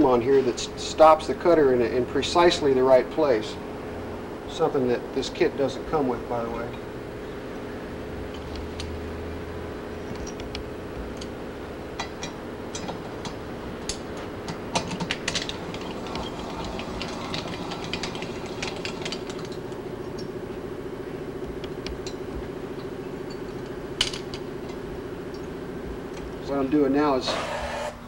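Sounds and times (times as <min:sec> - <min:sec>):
milling machine humming: 0:00.0 - 0:28.0
metal clicks: 0:12.0 - 0:20.3, 0:21.4 - 0:25.5.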